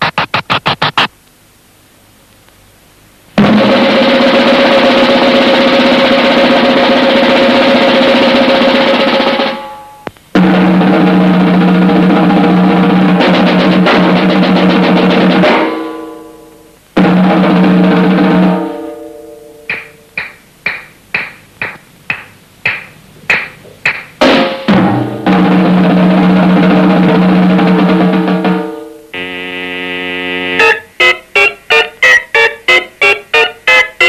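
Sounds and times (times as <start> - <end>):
drum roll: 0.0 - 1.1, 3.4 - 9.8, 10.4 - 15.8, 17.0 - 18.9, 19.7 - 28.9, 30.6 - 33.5
single drum strikes: 19.7 - 24.5
held tones: 29.2 - 34.0.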